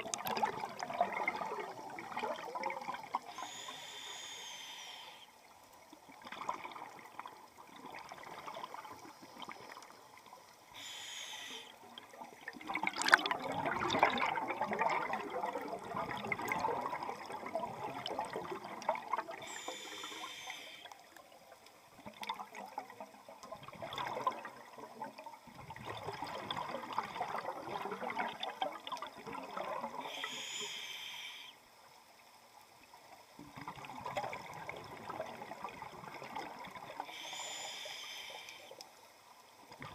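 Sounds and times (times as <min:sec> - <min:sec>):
gurgling exhaled bubbles: 0:00.0 - 0:03.6, 0:11.8 - 0:19.7, 0:22.1 - 0:30.4, 0:33.5 - 0:37.0
regulator inhale hiss: 0:03.2 - 0:05.5, 0:10.7 - 0:11.9, 0:19.4 - 0:21.1, 0:30.0 - 0:31.7, 0:37.0 - 0:38.9.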